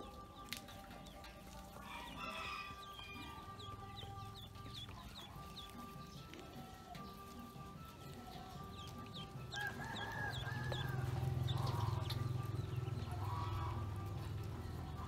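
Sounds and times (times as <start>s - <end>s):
ducklings paddling in water: 0.0s - 15.0s
ducklings peeping: 0.0s - 15.0s
rooster crowing: 1.8s - 3.6s, 9.4s - 12.1s.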